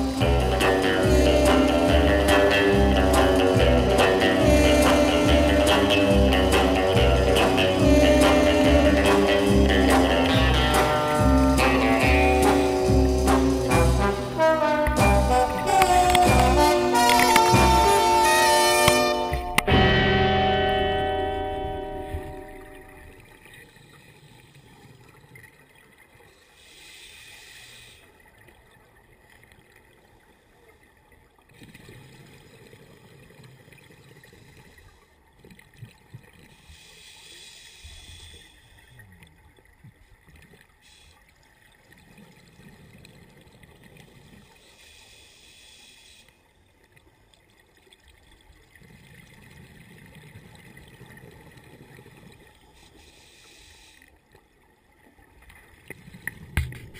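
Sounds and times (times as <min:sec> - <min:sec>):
scuba regulator inhale hiss: 0:26.4 - 0:28.1, 0:36.5 - 0:38.9, 0:44.4 - 0:46.4, 0:52.8 - 0:54.2.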